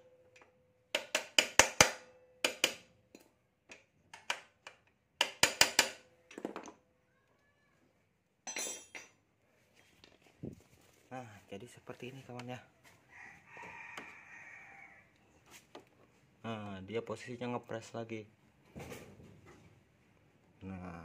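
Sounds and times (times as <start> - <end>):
hammer tapping steel rod: 0.3 - 4.4.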